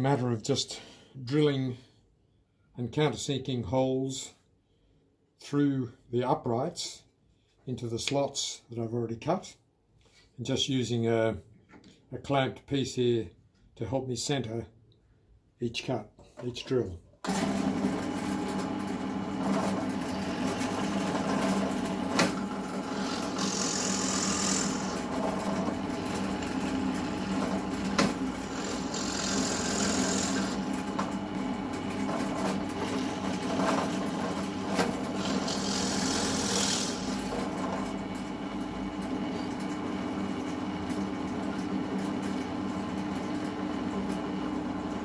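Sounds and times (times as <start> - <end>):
drill press motor humming: 17.3 - 39.6
drill bit hissing through wood: 22.8 - 25.0, 28.4 - 30.6, 35.2 - 37.2.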